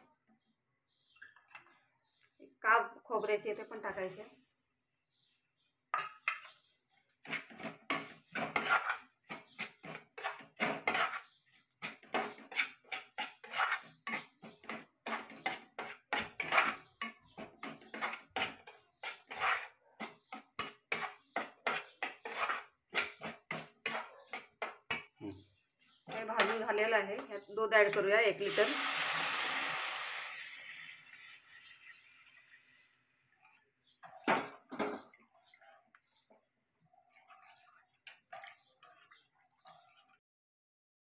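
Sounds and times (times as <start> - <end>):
spatula scraping a pan: 6.1 - 25.1, 25.8 - 40.2.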